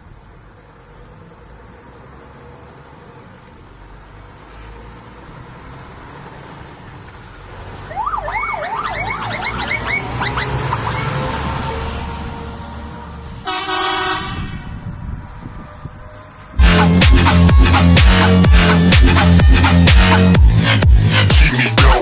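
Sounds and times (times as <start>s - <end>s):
truck diesel engines rumbling: 0.0s - 22.0s
wailing siren horn: 7.9s - 12.6s, 13.4s - 14.9s, 15.8s - 21.3s.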